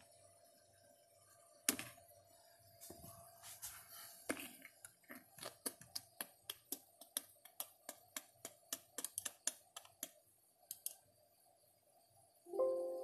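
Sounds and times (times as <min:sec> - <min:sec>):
keyboard typing: 0:05.7 - 0:11.0.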